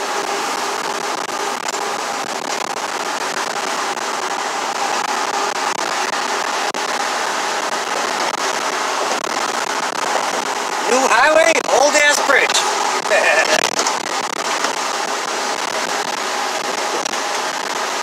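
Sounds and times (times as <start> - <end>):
faint engine drone: 0.0 - 18.0.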